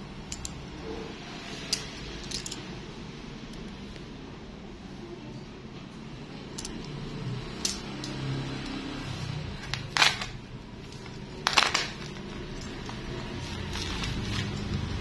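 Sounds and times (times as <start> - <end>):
plastic wrapping crinkling: 9.8 - 15.0.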